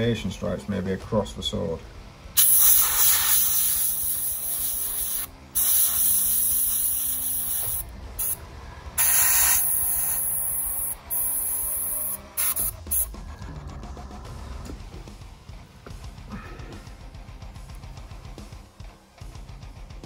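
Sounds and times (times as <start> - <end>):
airbrush spraying hiss: 2.4 - 8.4, 9.0 - 13.1.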